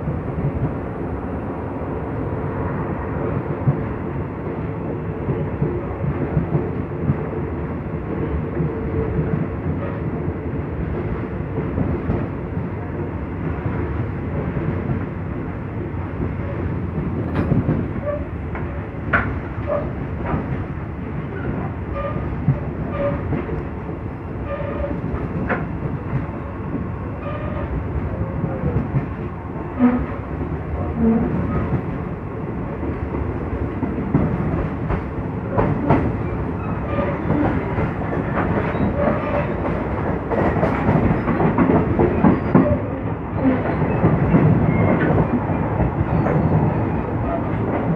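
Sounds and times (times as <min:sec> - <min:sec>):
train rumble: 0:00.0 - 0:47.9
train wheels clicking over rail joints: 0:33.8 - 0:47.9.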